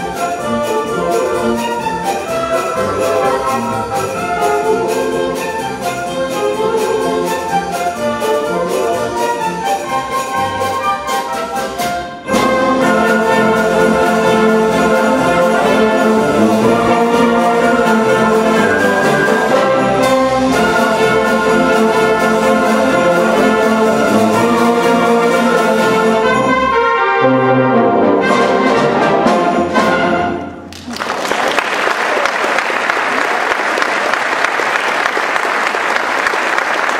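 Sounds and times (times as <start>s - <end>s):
orchestra playing: 0.0s - 36.9s
audience applause: 30.7s - 36.9s.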